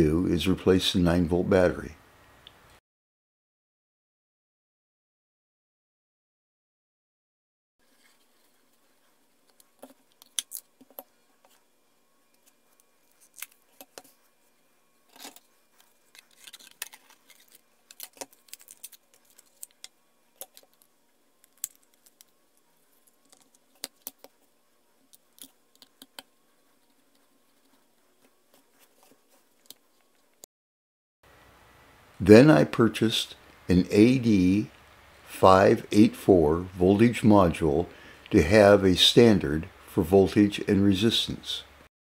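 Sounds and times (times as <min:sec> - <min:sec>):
packaging crinkling: 0:12.8 - 0:14.1, 0:15.1 - 0:24.2.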